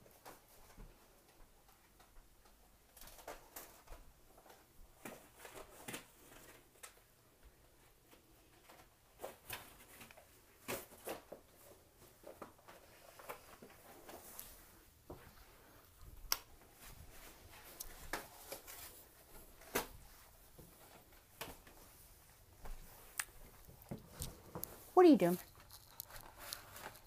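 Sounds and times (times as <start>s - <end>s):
dog tearing crinkly package: 25.4s - 27.0s.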